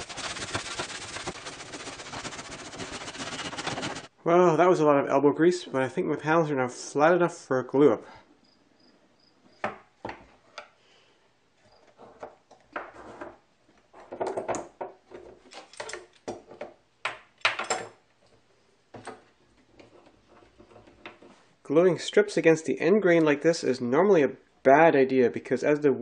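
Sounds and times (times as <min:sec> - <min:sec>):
metal clamps knocking and clattering: 0:14.0 - 0:18.0.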